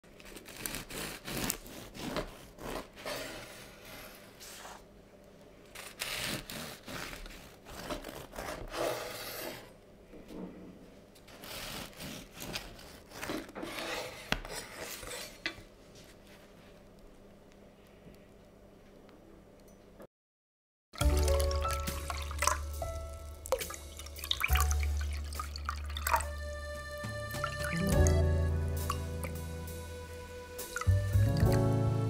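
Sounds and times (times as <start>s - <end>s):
knife sawing through bread: 0.2s - 4.8s, 5.8s - 9.7s, 11.3s - 15.4s.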